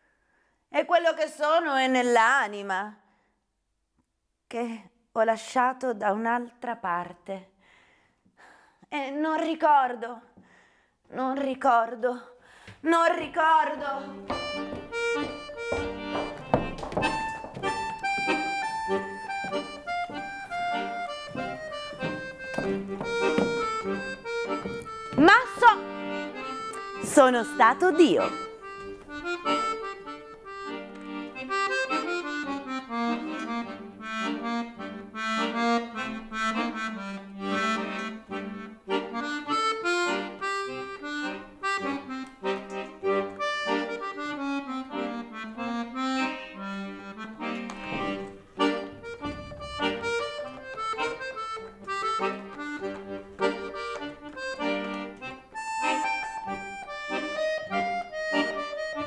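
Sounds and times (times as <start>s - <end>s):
accordion playing solo: 12.9s - 59.0s.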